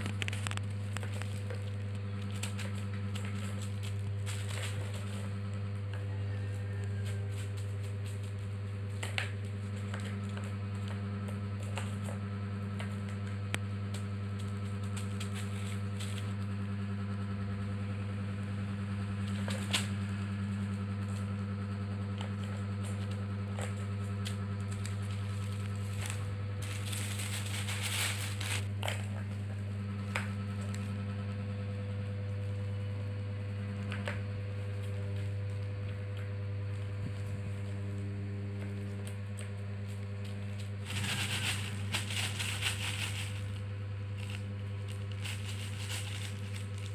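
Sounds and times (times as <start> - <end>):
plastic sheet crinkling: 0.0 - 5.5, 14.4 - 16.4, 22.3 - 29.3, 39.8 - 46.9
steady low hum: 0.0 - 46.9.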